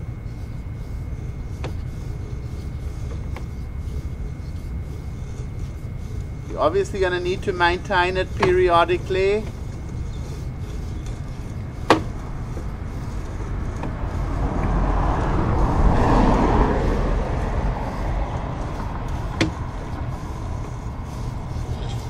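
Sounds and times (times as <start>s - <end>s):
low engine rumble: 0.0s - 22.0s
vehicle passing: 11.8s - 22.0s.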